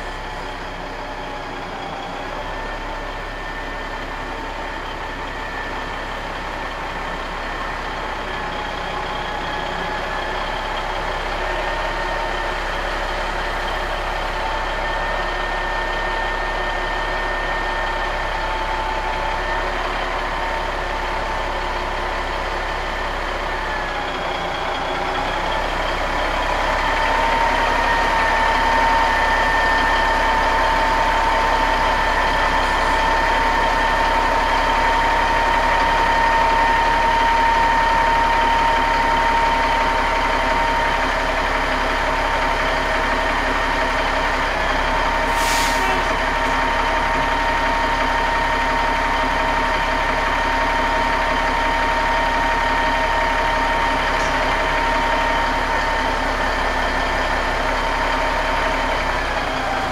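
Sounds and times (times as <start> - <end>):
truck diesel engine running: 0.0 - 59.9.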